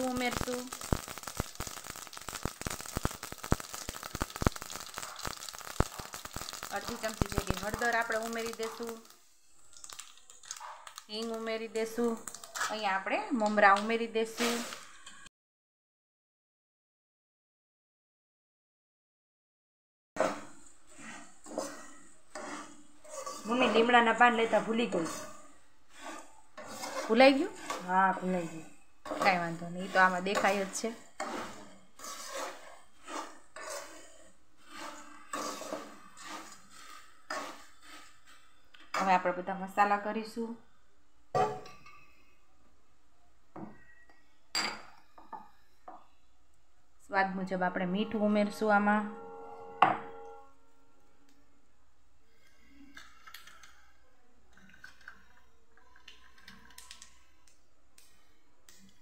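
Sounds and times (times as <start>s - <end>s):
metal spoon scraping puffed rice: 0.0s - 9.1s, 9.8s - 13.0s, 20.2s - 39.4s
puffed rice clicks and rustles: 0.0s - 12.8s.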